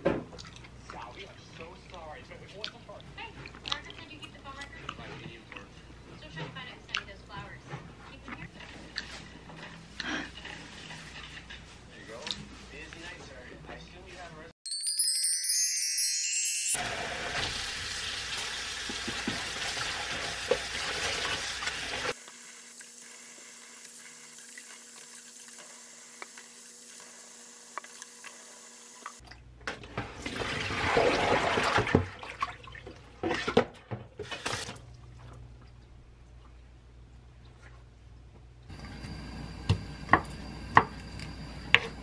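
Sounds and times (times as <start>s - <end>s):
water trickle with small clicks: 0.3s - 5.7s, 34.8s - 36.8s
tap water running into basin: 16.8s - 22.2s, 30.0s - 34.8s.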